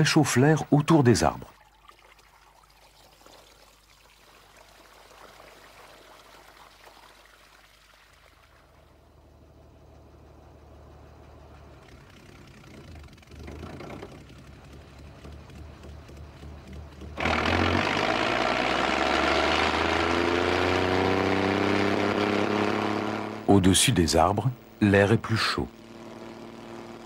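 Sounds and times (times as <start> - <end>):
water trickling and pouring: 1.4 - 9.1
low engine hum: 8.2 - 27.0.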